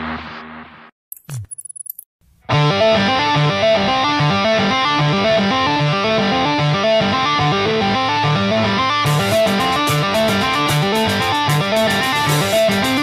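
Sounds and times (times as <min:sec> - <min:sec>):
picked guitar music: 0:02.5 - 0:13.0.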